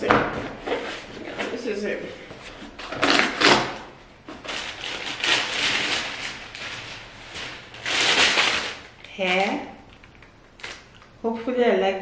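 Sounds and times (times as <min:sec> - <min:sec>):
tissue paper crinkling: 0:04.3 - 0:10.0, 0:10.6 - 0:11.1.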